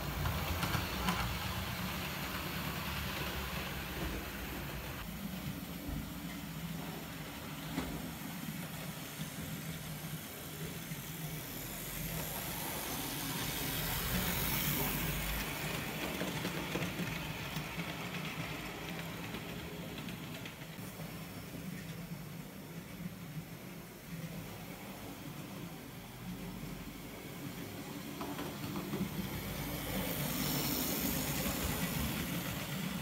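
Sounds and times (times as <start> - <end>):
wheels rumbling on rail: 0.0 - 8.8
model train motor hum: 26.2 - 33.0.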